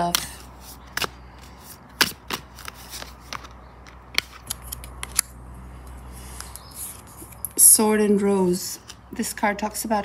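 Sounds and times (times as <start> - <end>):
cards clicking and flicking: 0.0 - 5.3.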